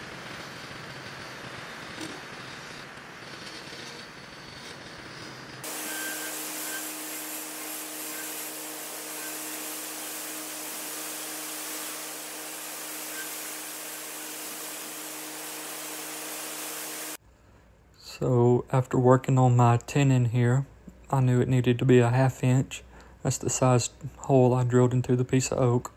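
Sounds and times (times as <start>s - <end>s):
wood lathe motor hum: 0.0s - 17.2s
lathe tool cutting wood hiss: 5.6s - 17.2s.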